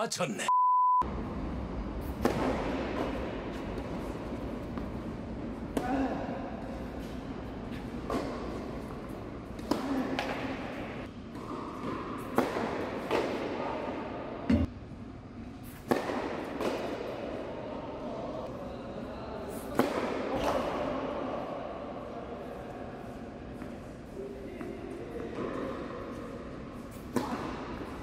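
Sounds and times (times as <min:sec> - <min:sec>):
tennis ball struck by racquets: 0:02.0 - 0:06.4, 0:07.8 - 0:13.6, 0:15.6 - 0:17.2, 0:19.7 - 0:21.0, 0:26.8 - 0:28.0.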